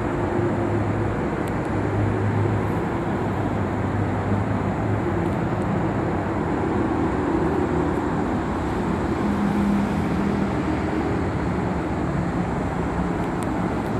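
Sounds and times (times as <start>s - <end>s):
low engine drone: 0.0s - 13.9s
passing vehicles rushing: 0.0s - 13.9s.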